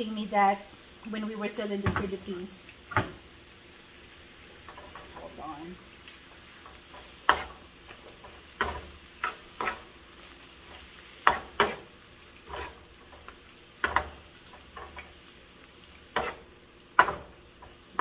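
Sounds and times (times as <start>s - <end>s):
faint frying sizzle: 0.0s - 18.0s
metal spoon scraping pan: 6.9s - 9.9s, 10.6s - 12.8s, 16.1s - 16.5s.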